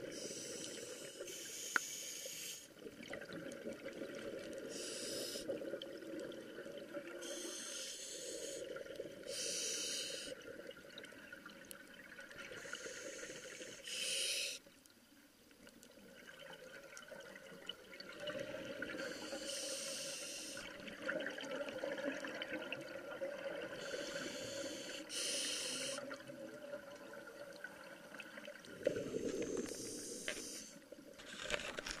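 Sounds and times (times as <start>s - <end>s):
low water noise: 0.0s - 32.0s
exhaled bubbles underwater: 2.8s - 4.8s, 5.5s - 7.3s, 16.0s - 19.4s, 20.6s - 24.6s, 26.0s - 30.2s.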